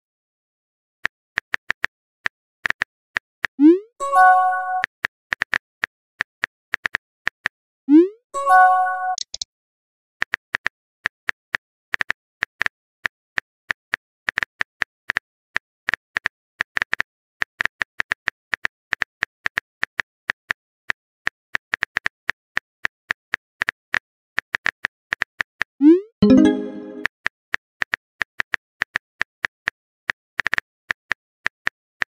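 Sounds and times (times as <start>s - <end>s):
phone keyboard typing clicks: 9.1s - 9.4s.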